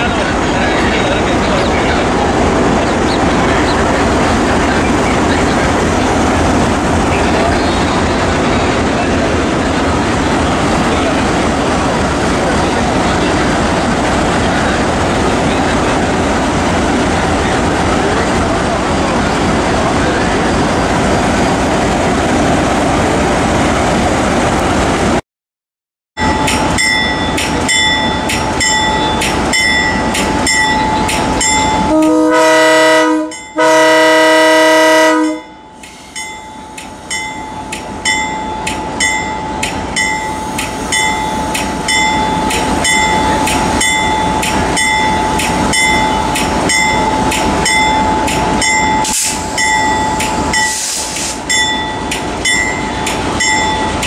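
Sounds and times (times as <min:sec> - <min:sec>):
train rumble: 0:00.0 - 0:25.2, 0:26.2 - 0:54.0
locomotive bell ringing: 0:26.2 - 0:34.1, 0:35.1 - 0:50.9, 0:51.5 - 0:54.0
locomotive air horn blasts: 0:31.9 - 0:35.5.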